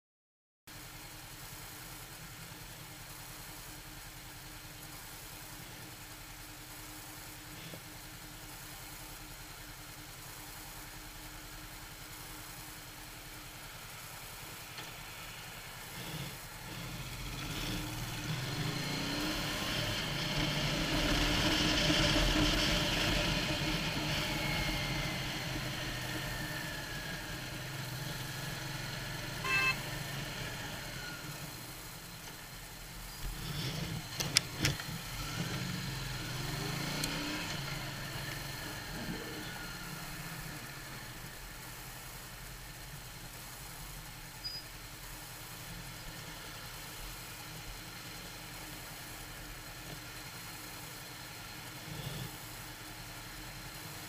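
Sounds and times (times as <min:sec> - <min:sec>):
motorcycle engine: 0:03.7 - 0:54.0
wind and road noise: 0:14.4 - 0:50.6
short beep: 0:29.4 - 0:29.9.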